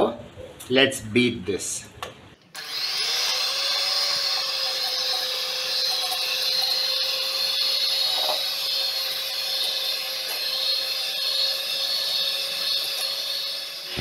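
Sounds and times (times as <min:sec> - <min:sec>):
electric hand mixer whining: 0:02.6 - 0:14.0.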